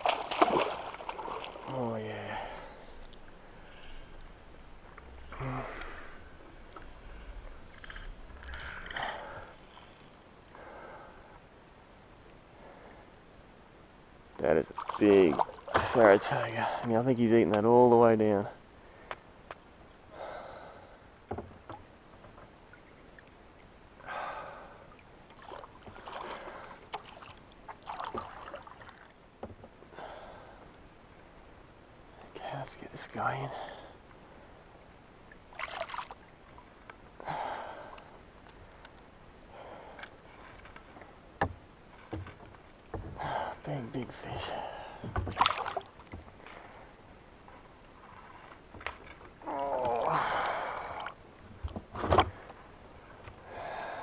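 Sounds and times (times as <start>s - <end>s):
fish splashing at the surface: 0.0s - 1.6s
faint water lapping: 0.0s - 11.6s, 14.4s - 54.0s.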